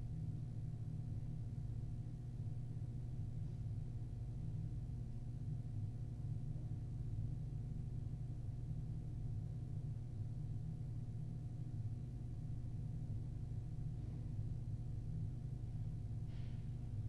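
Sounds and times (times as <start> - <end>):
low room tone hum: 0.0 - 17.0.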